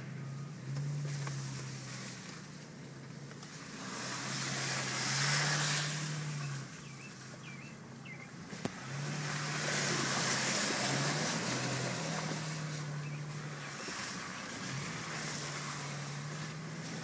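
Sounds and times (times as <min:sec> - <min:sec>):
car engine running: 0:00.0 - 0:17.0
tyres hissing on wet mud: 0:03.5 - 0:07.3, 0:08.6 - 0:17.0.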